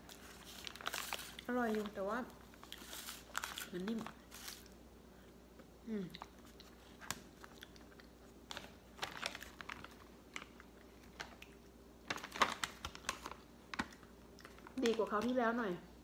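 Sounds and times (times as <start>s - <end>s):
plastic packaging crinkling: 0.0s - 4.8s, 8.5s - 15.4s.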